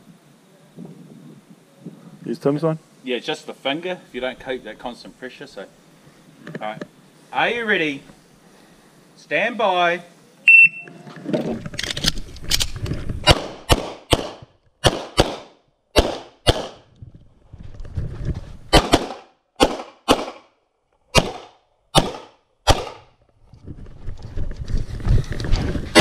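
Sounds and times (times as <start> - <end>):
shot timer beep: 10.5 - 10.9
pistol shots echoing: 13.3 - 16.8, 18.7 - 20.5, 21.2 - 23.0.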